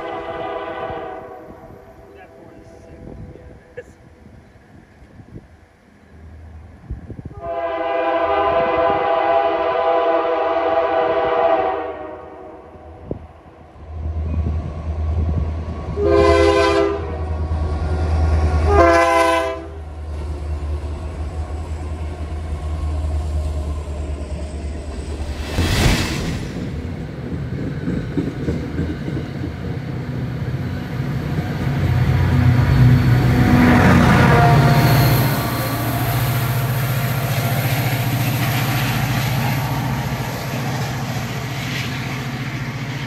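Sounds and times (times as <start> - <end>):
train air horn: 0.0 - 2.8, 7.3 - 13.0, 16.0 - 17.3, 18.4 - 19.8, 33.3 - 36.1.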